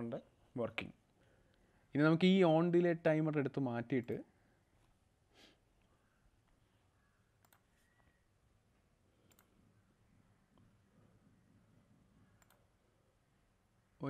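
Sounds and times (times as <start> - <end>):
faint computer mouse clicks: 7.4 - 8.2, 9.2 - 9.6, 12.4 - 12.6.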